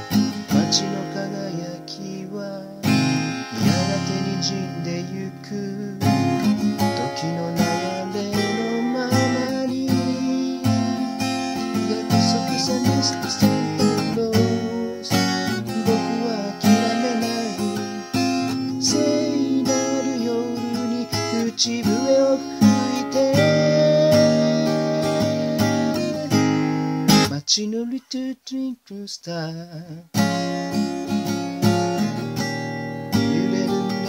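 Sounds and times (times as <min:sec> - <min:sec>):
acoustic guitar strumming: 0:00.0 - 0:28.4, 0:29.6 - 0:34.0
wavering melody line: 0:15.9 - 0:26.6.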